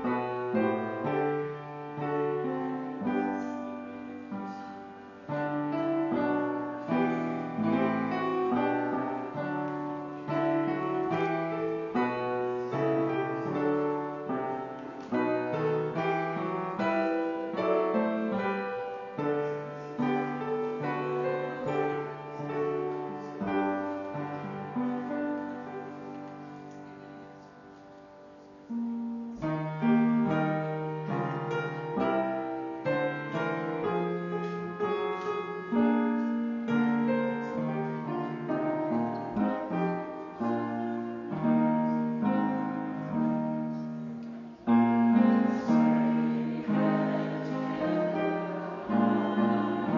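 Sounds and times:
slow piano piece: 0.0 - 49.9.

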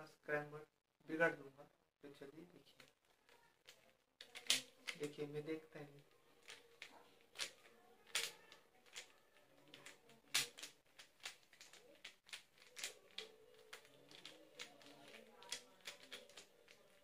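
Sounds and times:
puzzle cube clicking: 2.8 - 5.2, 6.4 - 17.0.

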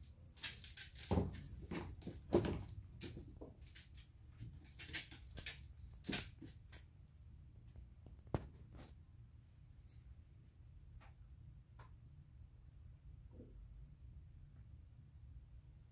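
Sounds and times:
dog claws tapping on tiles: 0.4 - 6.8.

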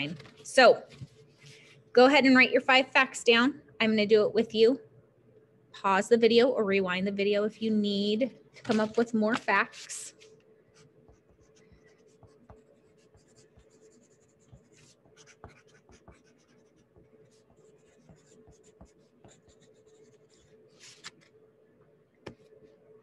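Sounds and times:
faint steady hum: 0.0 - 23.0
pen scratching on paper: 10.8 - 20.9.

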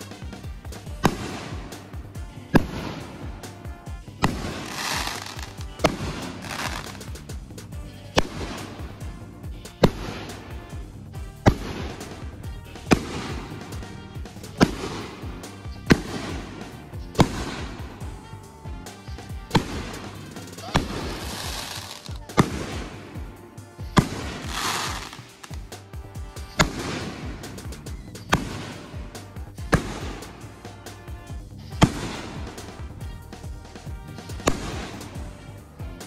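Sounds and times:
firework shells bursting: 0.0 - 3.6, 4.2 - 18.0, 19.4 - 23.2, 24.0 - 25.8
background music: 0.0 - 36.0.

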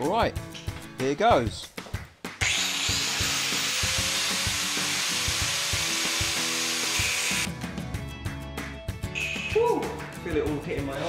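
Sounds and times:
background music: 0.0 - 11.0
angle grinder cutting steel: 2.4 - 7.5.

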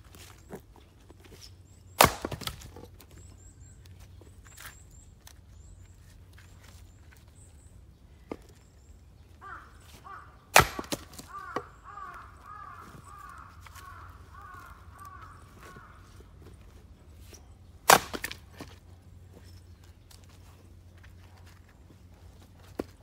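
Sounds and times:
axe cracking firewood: 1.9 - 3.2, 10.5 - 12.2, 17.2 - 18.8
bird calling: 9.3 - 16.5.

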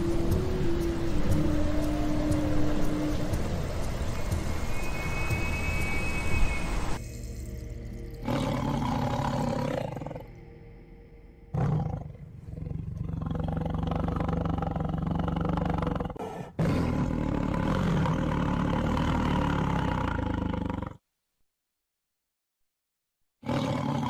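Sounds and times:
tiger roaring: 8.2 - 10.3, 11.5 - 21.0, 23.4 - 24.0.

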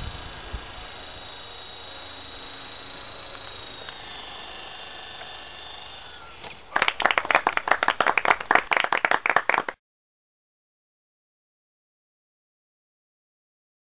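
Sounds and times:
model helicopter rotor whine: 0.0 - 7.9
hand clapping: 6.7 - 9.8.

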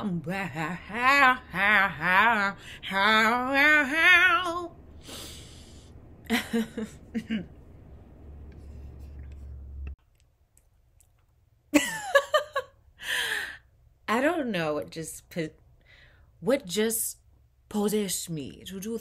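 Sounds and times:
woman singing with vibrato: 0.0 - 4.8
exhaled breath: 5.0 - 6.0.

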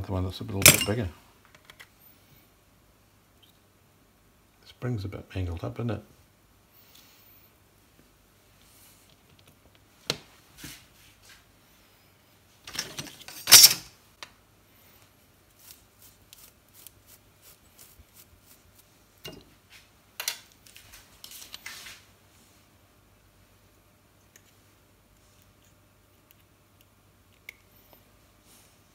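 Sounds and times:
metal tools clinking on workbench: 0.6 - 1.1, 12.7 - 13.8
metal parts clattering: 12.7 - 13.8.

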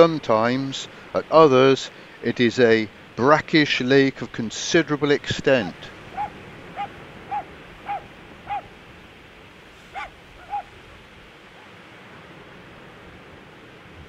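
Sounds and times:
steady background hiss: 0.0 - 14.0
dog barking: 6.1 - 8.7, 9.9 - 10.7.

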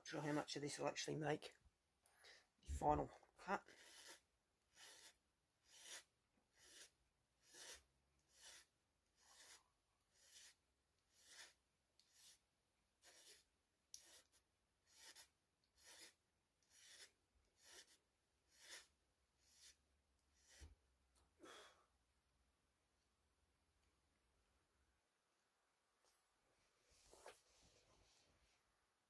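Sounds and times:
hand file rasping: 3.7 - 12.4, 13.0 - 19.8, 20.4 - 20.7.

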